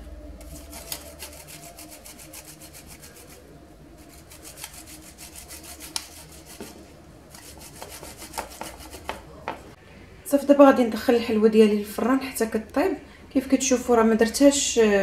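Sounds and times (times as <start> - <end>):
dough rubbed on metal grater: 0.4 - 9.3.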